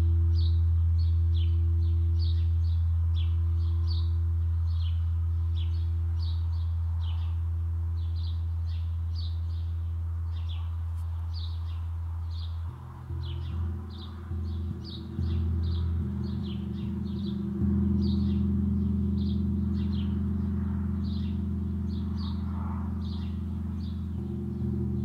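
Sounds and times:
birds chirping: 0.0 - 25.0
gong ringing: 12.7 - 25.0.

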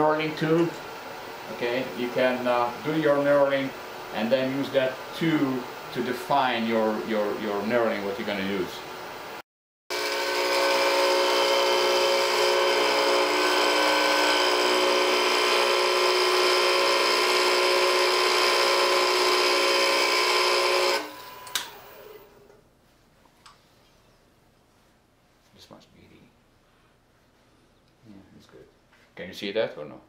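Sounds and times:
lathe knurling high whine: 9.9 - 22.3
click: 21.4 - 21.8.

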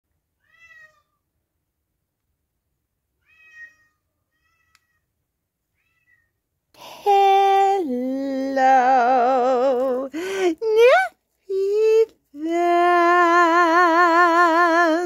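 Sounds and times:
cat meowing: 0.4 - 1.2, 3.2 - 5.1, 5.7 - 6.4.

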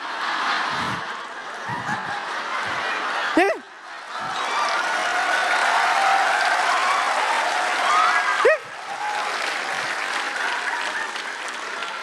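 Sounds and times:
audience laughing: 0.0 - 5.4
studio audience applauding: 4.2 - 12.0.

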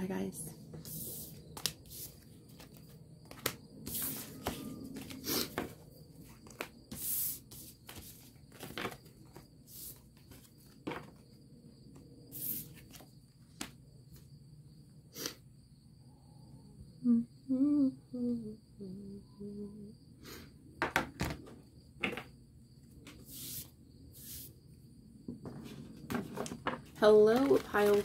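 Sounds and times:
cards sliding swishes: 0.8 - 5.7, 12.3 - 13.1, 23.1 - 24.5
cards tapping on table: 2.6 - 5.7, 10.8 - 11.2.

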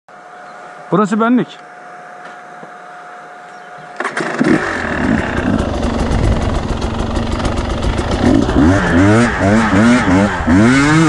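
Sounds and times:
motorcycle engine running: 4.1 - 11.0.

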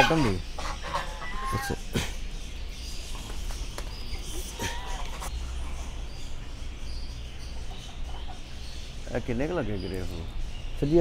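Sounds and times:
poultry calling: 0.0 - 9.0.

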